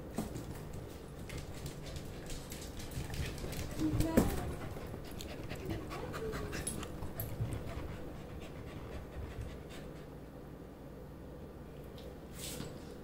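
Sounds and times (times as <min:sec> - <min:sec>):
dog panting: 0:01.4 - 0:10.4.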